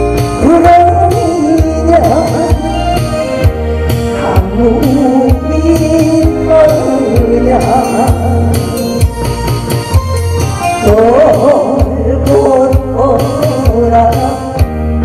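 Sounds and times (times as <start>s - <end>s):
backing track with bass beat: 0.0s - 15.0s
woman singing into microphone: 0.4s - 3.1s, 4.1s - 8.7s, 10.7s - 14.8s.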